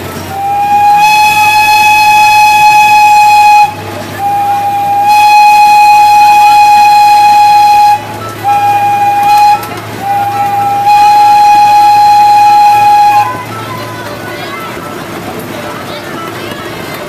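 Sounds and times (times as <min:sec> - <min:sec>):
loud whistle blasts: 0:00.3 - 0:13.5.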